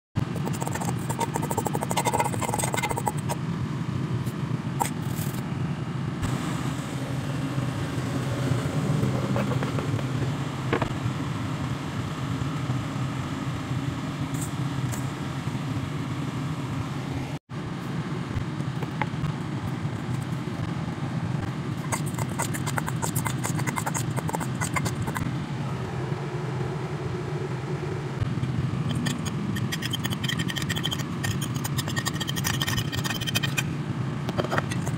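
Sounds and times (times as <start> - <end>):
traffic rumble: 2.2 - 29.6.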